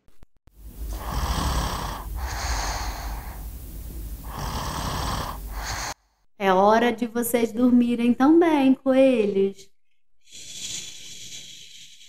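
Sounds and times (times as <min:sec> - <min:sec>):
low rumble: 0:00.6 - 0:05.9
person snoring: 0:00.7 - 0:06.0, 0:10.3 - 0:12.0.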